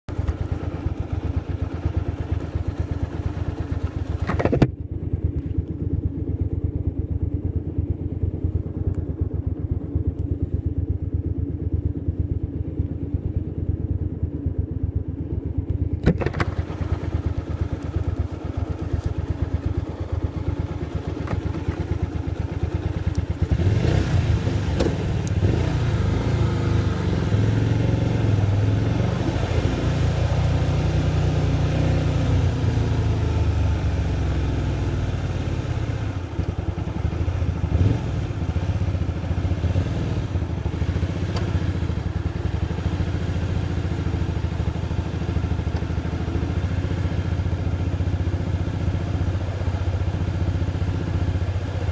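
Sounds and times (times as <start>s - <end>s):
motorcycle engine running: 0.0s - 51.9s
clunks: 4.2s - 4.8s, 15.9s - 16.8s.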